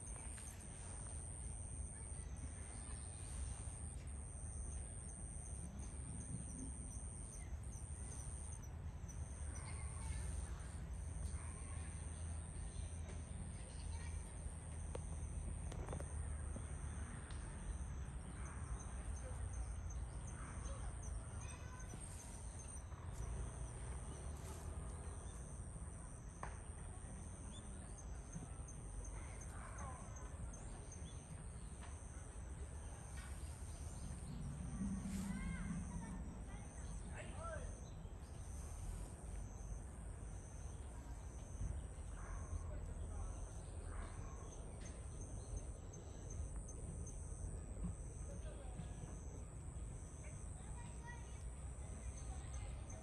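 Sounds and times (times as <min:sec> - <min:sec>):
constant low rumble: 0:00.0 - 0:53.0
low wind rumble: 0:33.3 - 0:40.3.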